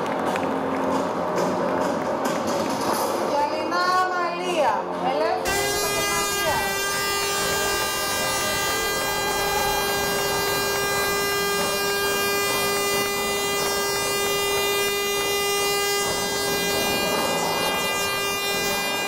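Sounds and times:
steady buzzing tone: 0:05.4 - 0:19.0.

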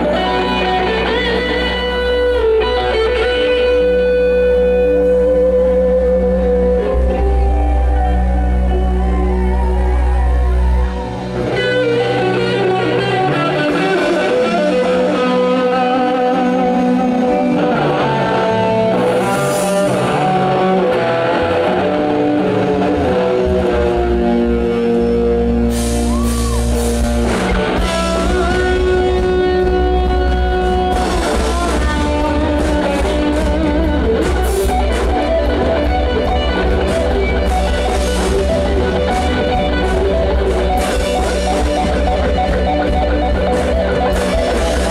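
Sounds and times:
electric guitar lead: 0:00.0 - 0:44.9.

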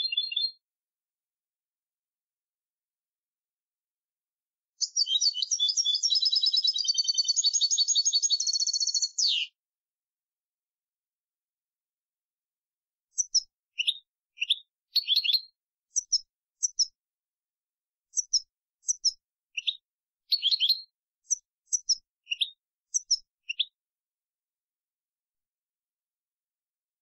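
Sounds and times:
goldfinch twittering song: 0:00.0 - 0:00.6, 0:04.8 - 0:09.5, 0:13.1 - 0:17.0, 0:18.1 - 0:23.7.

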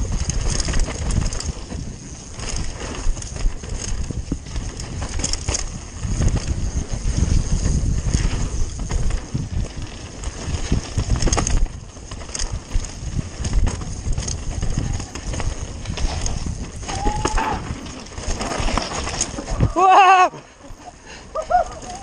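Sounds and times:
bike rattling and knocking: 0:00.0 - 0:19.9, 0:20.7 - 0:22.0.

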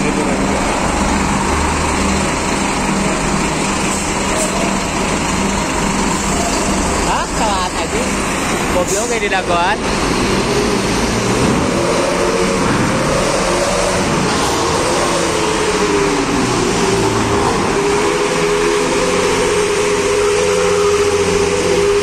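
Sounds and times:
constant rumble: 0:00.0 - 0:22.0
diesel truck engine: 0:00.0 - 0:22.0.

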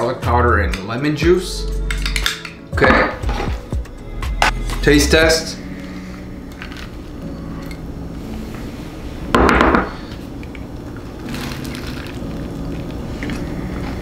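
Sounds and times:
burrito crunching when chewed: 0:11.0 - 0:14.0.

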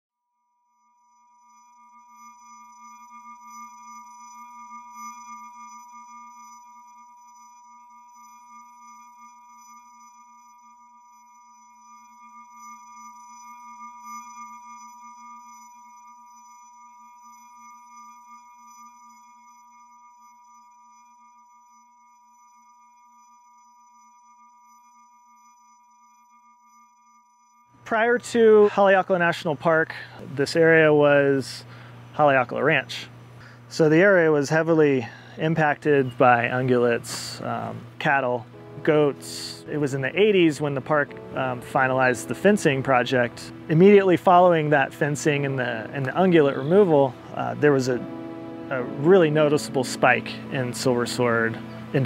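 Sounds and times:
ambient synth pad drone: 0:27.8 - 0:52.0.

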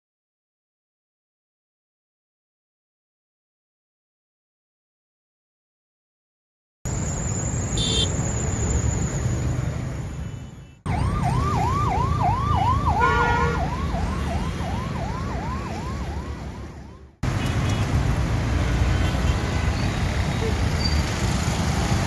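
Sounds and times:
emergency siren yelping: 0:10.8 - 0:17.2.

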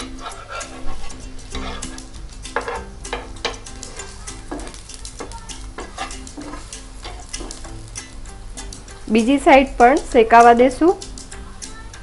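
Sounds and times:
spatula scraping pan: 0:00.0 - 0:07.8
pancakes sizzling in oil: 0:00.0 - 0:12.0.

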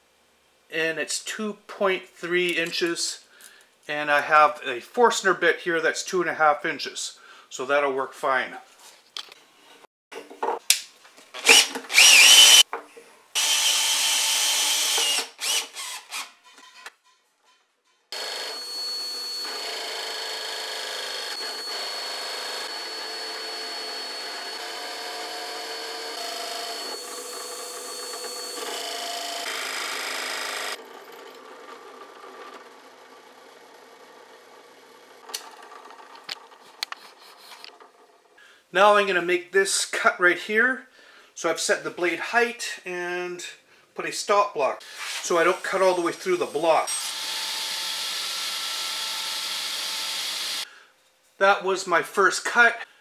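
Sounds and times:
drill press boring wood: 0:11.4 - 0:12.6, 0:13.4 - 0:16.3, 0:18.2 - 0:36.9, 0:45.6 - 0:50.6.

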